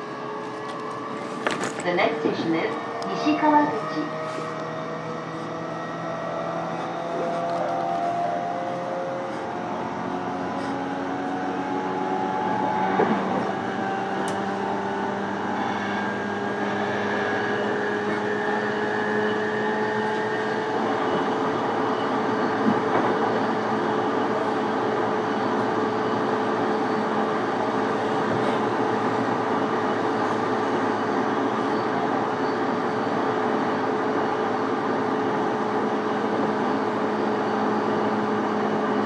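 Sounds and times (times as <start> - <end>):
train motor whine: 0.0 - 39.0
train wheel and rail noise: 0.0 - 39.0.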